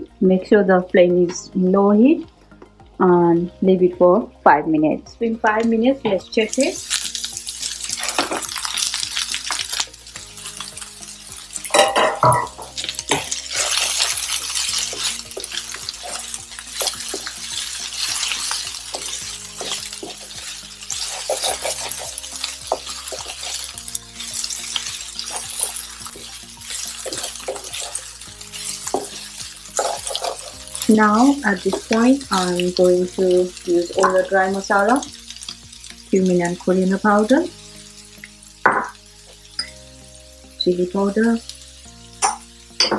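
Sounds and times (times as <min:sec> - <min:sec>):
food sizzling: 0:00.0 - 0:42.9
spatula scraping a frying pan: 0:06.8 - 0:31.9.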